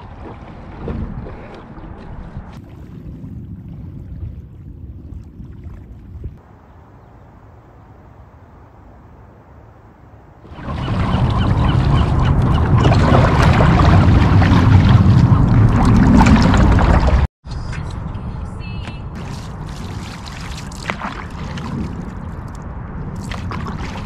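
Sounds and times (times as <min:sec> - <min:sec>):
water splashing from paddling: 0:00.0 - 0:04.4, 0:10.5 - 0:17.3, 0:19.2 - 0:22.4
wind on microphone: 0:00.0 - 0:09.4.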